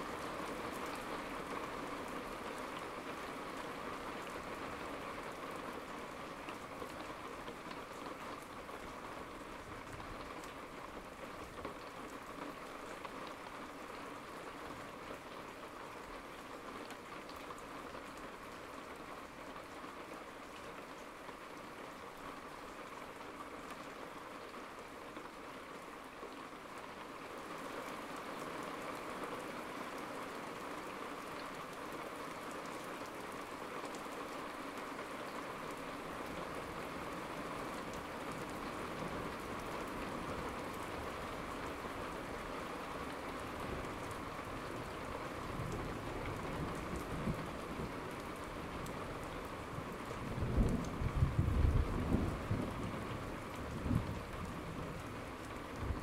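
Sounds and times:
low rumble of thunder: 50.0 - 55.1, 55.7 - 56.0.

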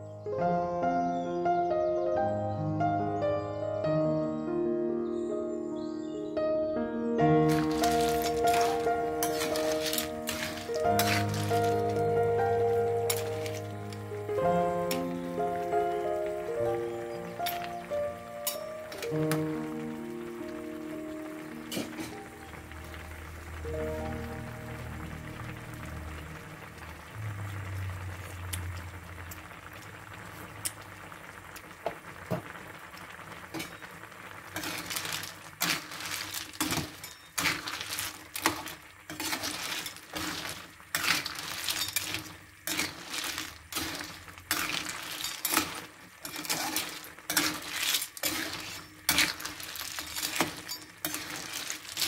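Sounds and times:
metal spoon scraping a pan: 7.5 - 14.0, 34.6 - 52.0
sauce bubbling in a wok: 7.5 - 52.0.

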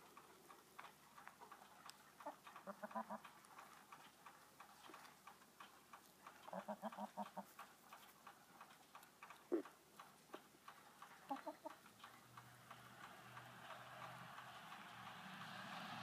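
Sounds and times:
hens clucking: 0.0 - 12.4.

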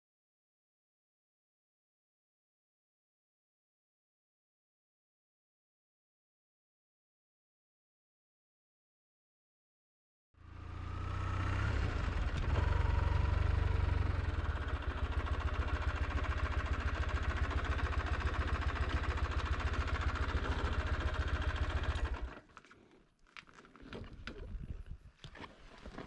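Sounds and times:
motorcycle engine idling: 10.4 - 22.5.

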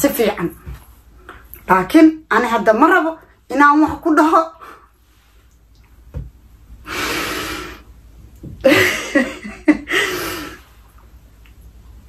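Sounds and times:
woman laughing: 8.6 - 10.6.

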